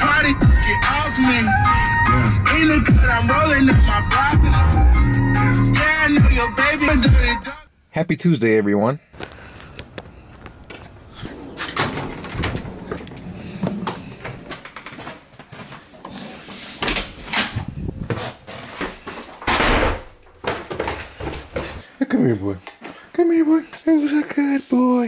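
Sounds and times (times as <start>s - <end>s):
footsteps on wood floor: 9.2s - 11.7s, 12.3s - 17.0s, 18.0s - 19.5s, 20.2s - 21.8s
door opening: 10.6s - 15.2s, 19.4s - 21.0s.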